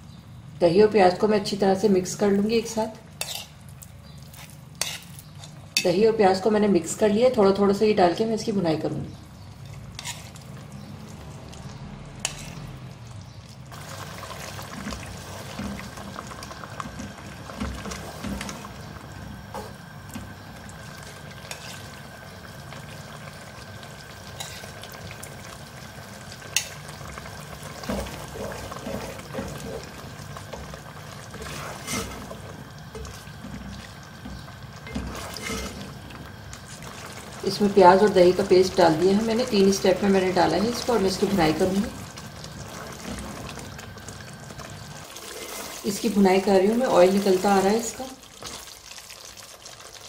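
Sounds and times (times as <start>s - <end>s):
wet sloshing stirring: 27.7s - 37.5s, 41.8s - 45.9s.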